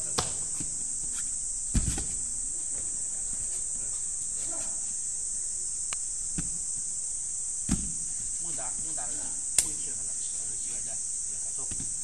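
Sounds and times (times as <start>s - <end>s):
insects buzzing: 0.0s - 12.0s
low thump: 7.6s - 8.0s
sharp click: 9.6s - 9.8s.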